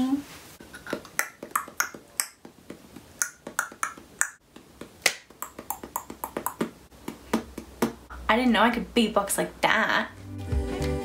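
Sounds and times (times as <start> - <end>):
woman beatboxing: 0.7 - 8.2.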